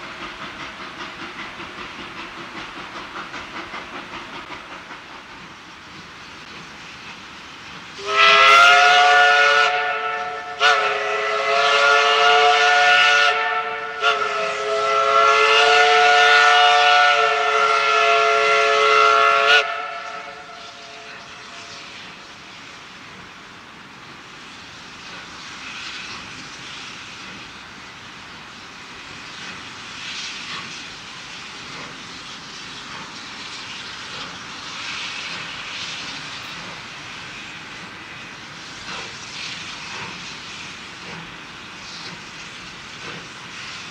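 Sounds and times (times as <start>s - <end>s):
steady steam hiss: 0.0s - 43.9s
steam whistle blasts: 8.0s - 22.0s.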